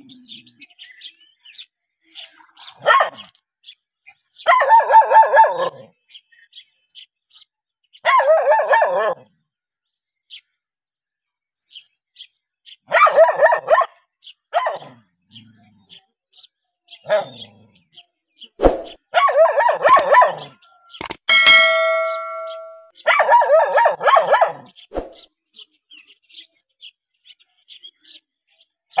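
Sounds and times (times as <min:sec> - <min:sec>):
dog barking: 0:02.8 - 0:03.3, 0:04.4 - 0:05.9, 0:08.0 - 0:09.3, 0:12.9 - 0:15.0, 0:17.0 - 0:17.5, 0:19.1 - 0:20.6, 0:23.0 - 0:24.8.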